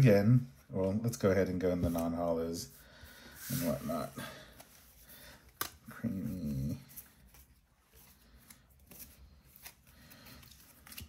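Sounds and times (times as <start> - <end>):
cards rustling: 3.2 - 11.0.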